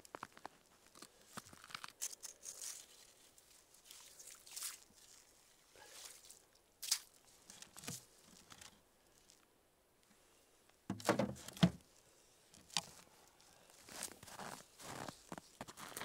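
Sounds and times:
rustling and scraping of gear: 0:00.0 - 0:04.2, 0:07.3 - 0:09.4, 0:12.4 - 0:16.0
box lid shutting with knocks: 0:10.9 - 0:11.8.

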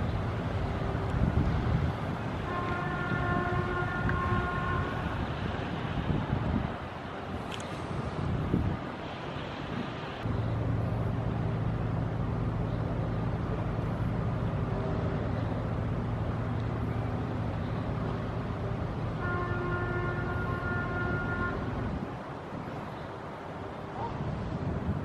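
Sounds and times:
ship diesel engine drone: 0:00.0 - 0:25.0
water noise: 0:00.0 - 0:25.0
wind: 0:00.0 - 0:25.0
ship horn blast: 0:02.4 - 0:05.5, 0:19.0 - 0:22.3.

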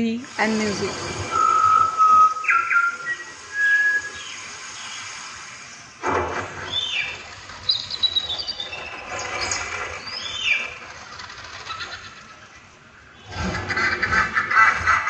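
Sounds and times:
descending bird-like chirps: 0:00.5 - 0:05.3, 0:06.6 - 0:13.3.

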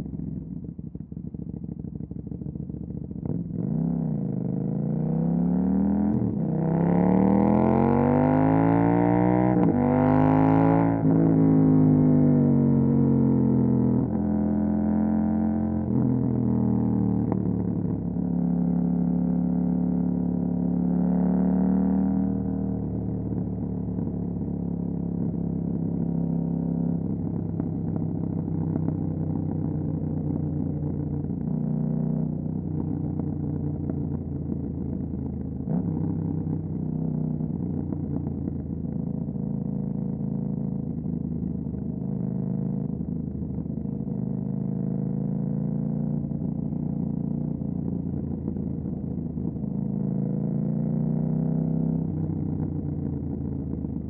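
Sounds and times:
motorcycle engine revving: 0:02.9 - 0:22.9.

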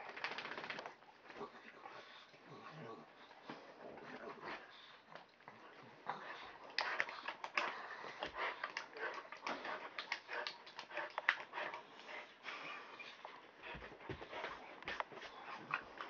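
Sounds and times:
dogs scuffling and snuffling: 0:03.4 - 0:16.0.

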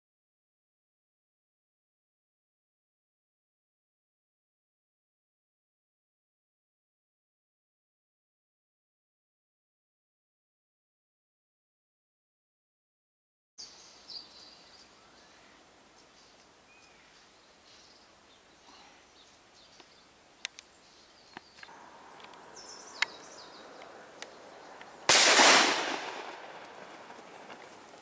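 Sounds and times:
faint high bird chirps: 0:13.6 - 0:25.1
shotgun shot: 0:25.1 - 0:27.1.

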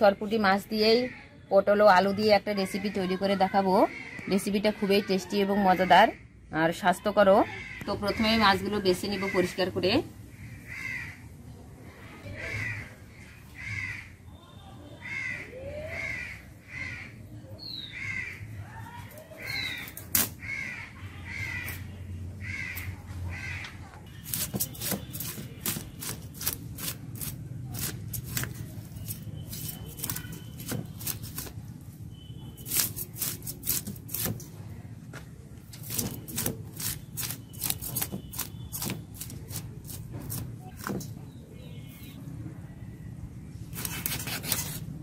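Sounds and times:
crow cawing: 0:07.4 - 0:08.4, 0:09.0 - 0:09.6, 0:10.3 - 0:11.3, 0:12.3 - 0:14.2, 0:15.0 - 0:17.2, 0:17.9 - 0:18.6, 0:20.4 - 0:23.8
fish scales scraped on blade: 0:43.7 - 0:44.9.

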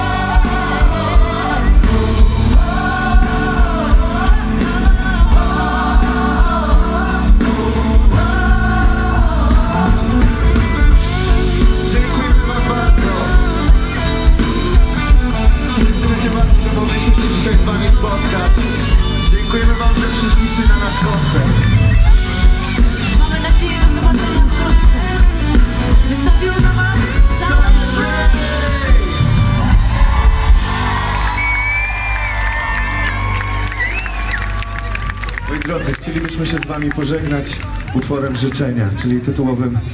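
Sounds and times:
backing vocalists singing: 0:00.0 - 0:21.6, 0:24.0 - 0:31.3
lead singer singing: 0:00.0 - 0:21.7, 0:23.0 - 0:31.4
steady drum beat: 0:00.0 - 0:33.3
live pop band playing: 0:00.0 - 0:37.9.

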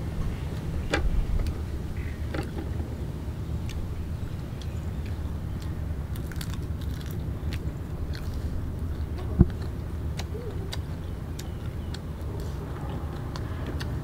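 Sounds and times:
steady low rumble: 0:00.0 - 0:14.0
shrimp shell crunching: 0:06.1 - 0:08.4.

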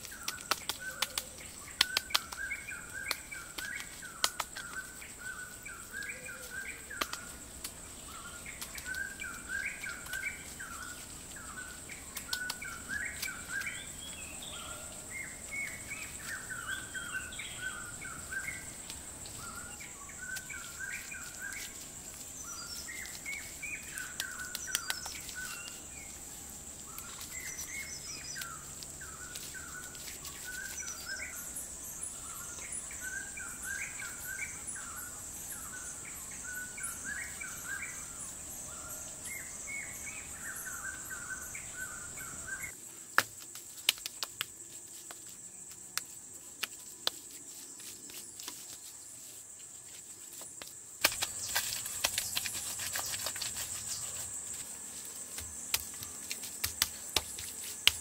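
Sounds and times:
birds chirping: 0:00.0 - 0:42.8.

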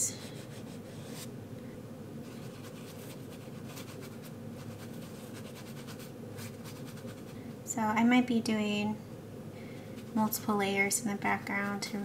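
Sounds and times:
paintbrush brushing on paper: 0:00.2 - 0:01.3, 0:02.2 - 0:07.4, 0:09.9 - 0:10.3.

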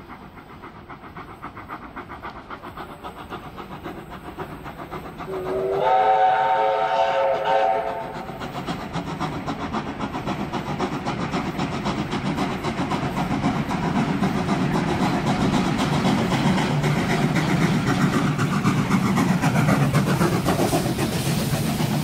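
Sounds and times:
steam locomotive chugging: 0:00.0 - 0:22.0
steam whistle: 0:05.3 - 0:08.3.

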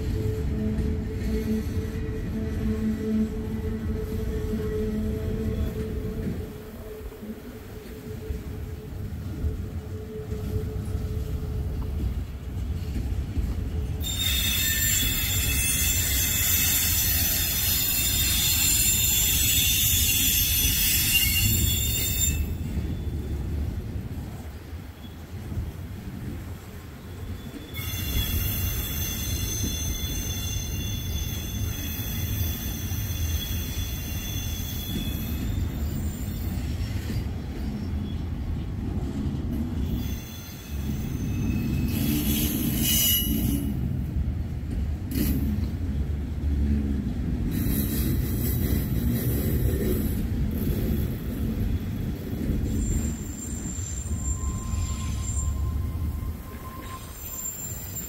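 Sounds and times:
freight train wheels rumbling: 0:00.0 - 0:58.0
metal squeals: 0:14.0 - 0:23.3, 0:27.2 - 0:37.9, 0:39.8 - 0:43.8, 0:52.5 - 0:58.0.

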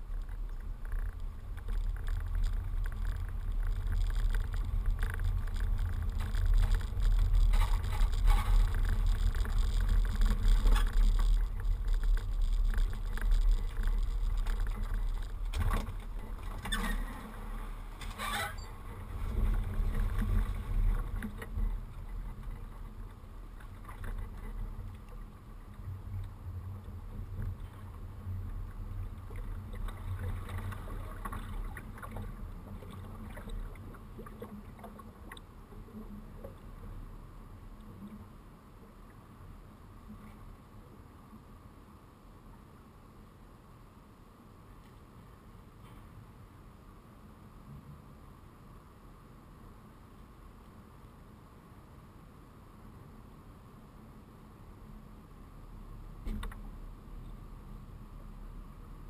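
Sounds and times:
trailer rolling on pavement: 0:00.0 - 0:32.7.

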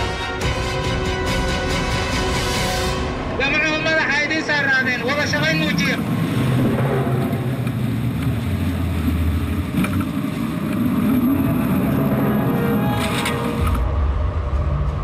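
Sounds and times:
rushing water: 0:02.9 - 0:13.9
motorboat engine running: 0:06.0 - 0:15.0.

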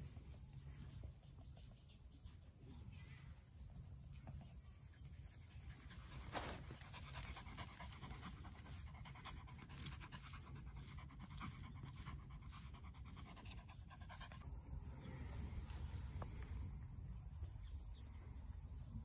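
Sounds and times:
dog panting: 0:04.9 - 0:14.4
low steady rumble: 0:06.9 - 0:19.0.

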